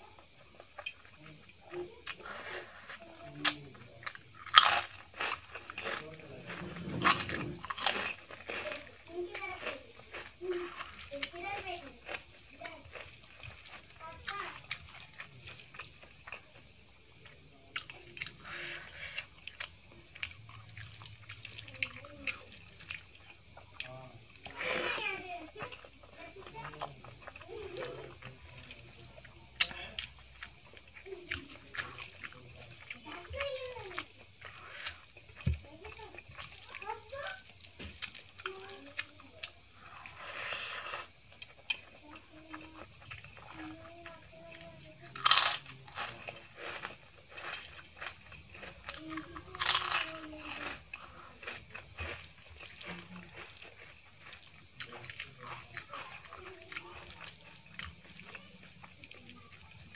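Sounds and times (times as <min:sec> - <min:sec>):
chewing: 0:00.0 - 0:59.9
wet chewing smacks: 0:17.2 - 0:45.4
wet hiss of mouthful: 0:39.9 - 0:41.2.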